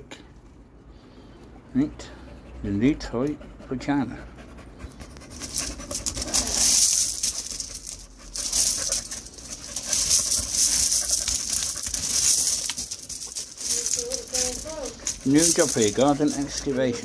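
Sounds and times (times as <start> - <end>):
dog breathing hard: 0.7 - 17.0
brick and gravel scraping: 5.1 - 17.0.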